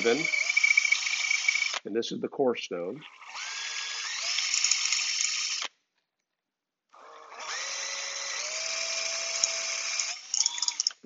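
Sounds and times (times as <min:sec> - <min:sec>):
drill grinding chisel with stone: 0:00.0 - 0:01.8, 0:03.0 - 0:05.7, 0:07.0 - 0:11.0.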